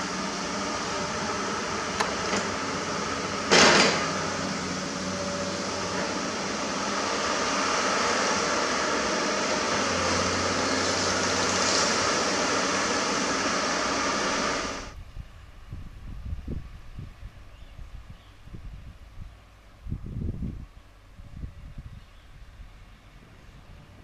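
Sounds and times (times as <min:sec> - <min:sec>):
hydraulic hiss: 0:00.0 - 0:14.9
excavator engine running: 0:00.0 - 0:15.0
faint outdoor sound: 0:00.0 - 0:24.0.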